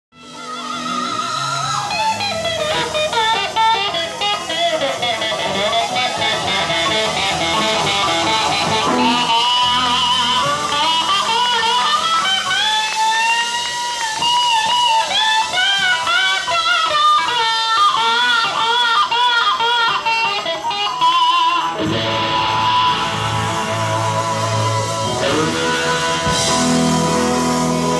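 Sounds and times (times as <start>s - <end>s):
electric guitar: 0.1s - 27.9s
pedal steel guitar melody: 0.2s - 27.9s
low bass notes: 2.3s - 12.2s, 21.8s - 27.9s.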